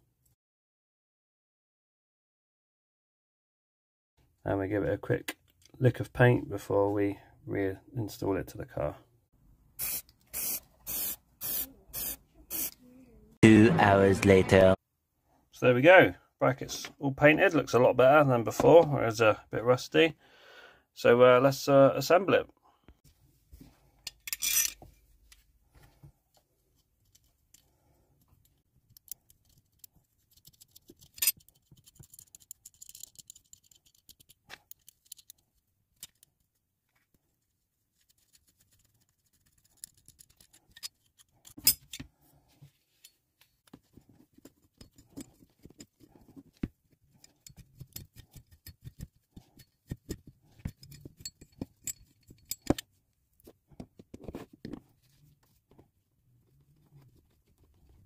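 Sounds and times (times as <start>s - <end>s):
metal parts clicking and clinking: 24.0s - 24.8s, 28.5s - 35.4s, 36.0s - 36.4s, 39.4s - 42.0s, 47.2s - 52.9s.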